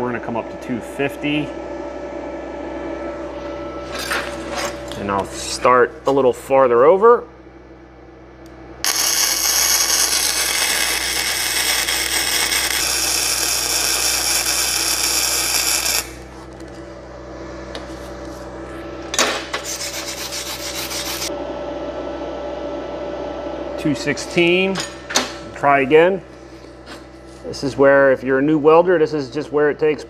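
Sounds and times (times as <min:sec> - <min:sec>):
low steady hum: 0:00.0 - 0:30.0
welding arc crackling: 0:08.8 - 0:16.3, 0:19.7 - 0:21.3.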